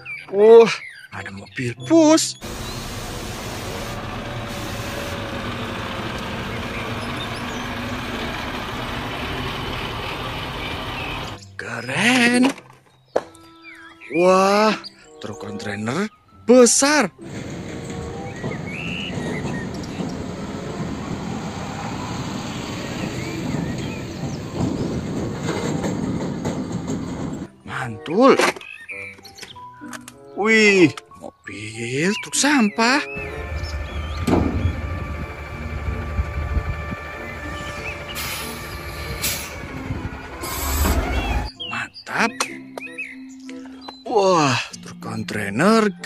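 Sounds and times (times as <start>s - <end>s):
coach diesel engine running: 2.4s - 11.4s, 17.2s - 27.5s, 33.2s - 41.5s.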